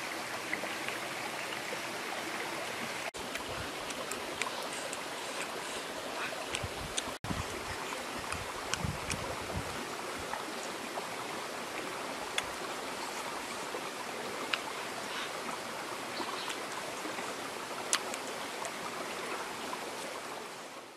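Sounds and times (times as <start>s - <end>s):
stream rushing: 0.0s - 20.9s.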